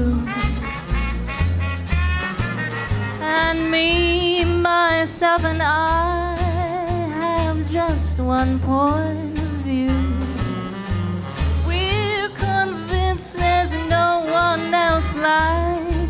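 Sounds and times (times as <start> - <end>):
woman singing with vibrato: 0.0 - 0.8, 3.2 - 10.6, 11.6 - 16.0
small jazz band: 0.0 - 16.0
walking bass line: 0.0 - 16.0.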